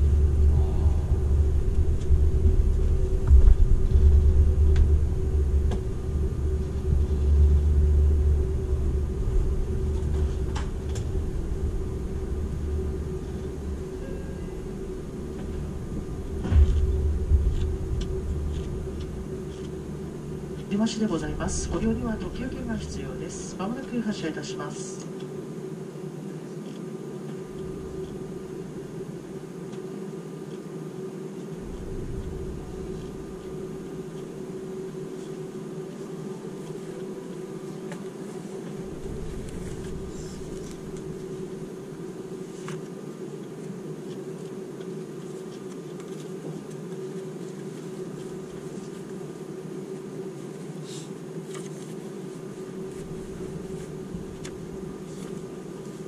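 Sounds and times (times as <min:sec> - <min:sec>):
faint low rumbles: 0:00.0 - 0:25.0, 0:27.3 - 0:29.4, 0:31.4 - 0:42.7, 0:52.7 - 0:56.0
train cabin air conditioning hum: 0:00.0 - 0:56.0.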